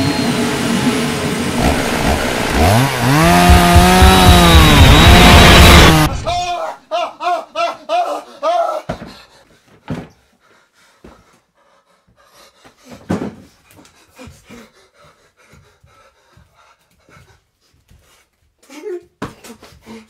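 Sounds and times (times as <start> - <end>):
man panting heavily: 8.2 - 18.7, 19.3 - 20.0.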